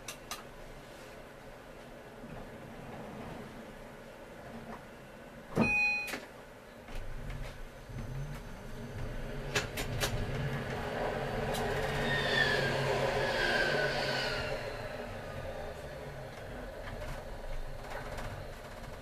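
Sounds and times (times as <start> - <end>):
passing tram rumble and whine: 1.3 - 5.5, 6.7 - 19.0
tram motors humming: 6.8 - 19.0
sharp clicks over rails: 8.4 - 13.2.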